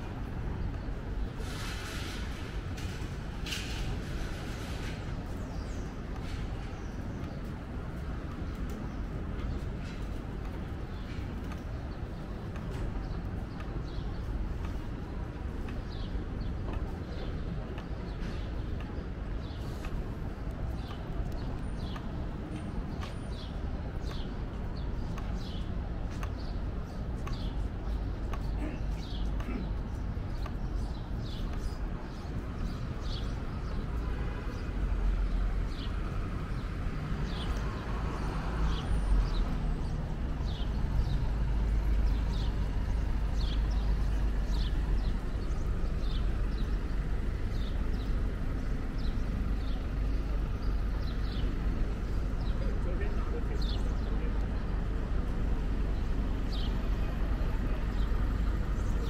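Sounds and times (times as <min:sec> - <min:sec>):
traffic rumble: 0:00.0 - 0:59.0
faint voices: 0:49.4 - 0:59.0.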